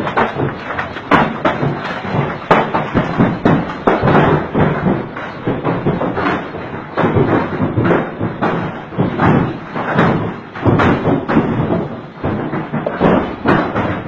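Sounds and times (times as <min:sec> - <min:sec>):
heavy hail on hard surfaces: 0:00.0 - 0:14.0.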